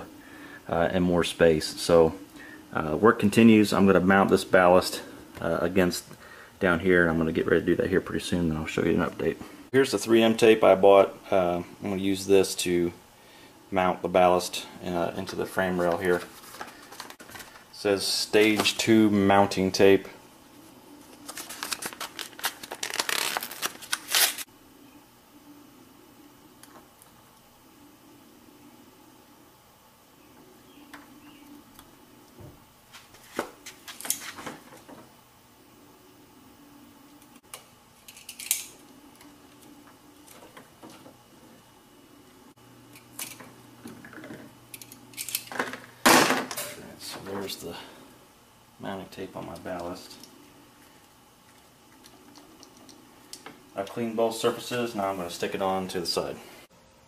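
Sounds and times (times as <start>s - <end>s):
packaging rustling and crinkling: 21.0s - 24.5s.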